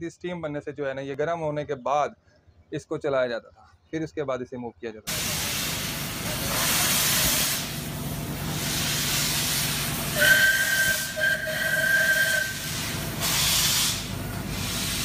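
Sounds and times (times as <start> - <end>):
steam locomotive hissing: 5.1 - 15.0
multi-tone steam whistle: 8.5 - 15.0.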